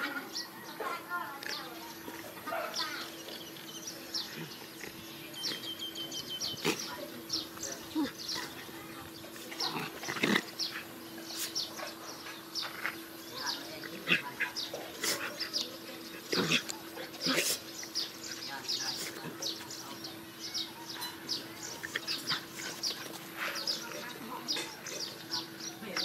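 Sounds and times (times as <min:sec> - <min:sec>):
high bird chirps: 0:05.2 - 0:07.6
dogs yelping and snarling: 0:13.8 - 0:18.3.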